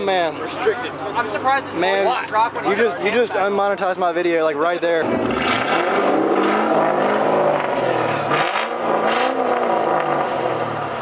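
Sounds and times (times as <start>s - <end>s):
car engine revving: 5.0s - 11.0s.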